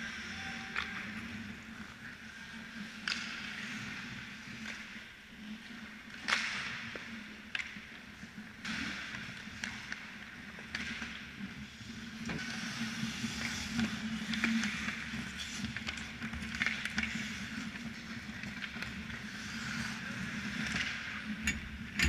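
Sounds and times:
skates hissing on ice: 0:11.8 - 0:15.8, 0:18.9 - 0:21.1.

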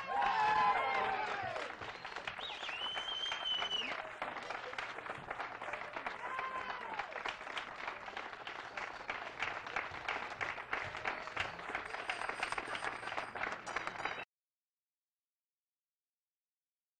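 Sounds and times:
audience applause: 0:00.0 - 0:14.3.

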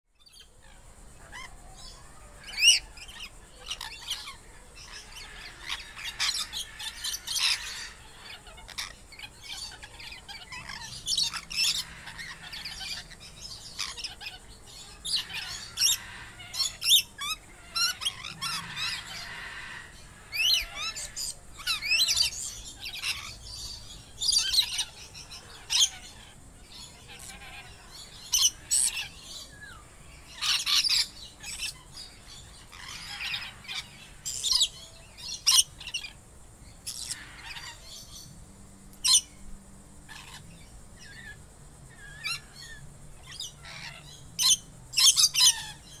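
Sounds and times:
parrot squawking and chirping: 0:02.4 - 0:36.2, 0:36.8 - 0:38.0, 0:39.0 - 0:39.3, 0:40.1 - 0:45.9.

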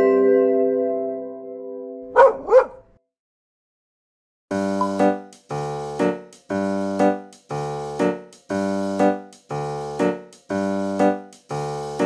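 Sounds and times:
keyboard playing repeating chords: 0:04.5 - 0:12.0.

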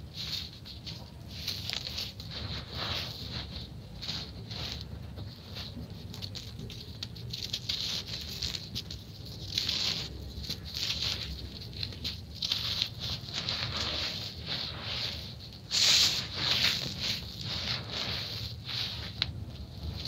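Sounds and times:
sand grains trickling: 0:00.0 - 0:20.0
gritty sand crunching in hands: 0:00.1 - 0:20.0
hands scraping across sand: 0:11.9 - 0:20.0.

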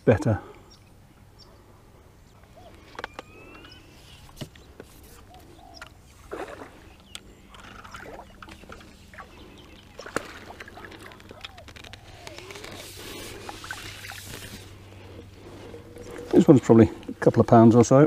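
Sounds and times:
fish splashing at surface: 0:06.2 - 0:06.9, 0:07.6 - 0:11.6.

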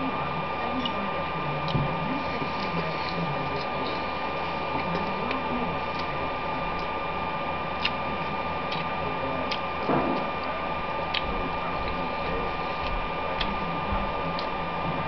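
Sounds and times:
thin steady whine: 0:00.0 - 0:15.0
person chewing: 0:07.8 - 0:08.0, 0:08.7 - 0:08.9.

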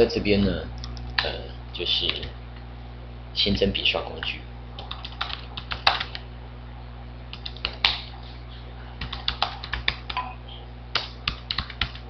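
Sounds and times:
low electrical hum: 0:00.0 - 0:12.0
keyboard typing clicks: 0:04.8 - 0:06.2, 0:07.3 - 0:08.0.

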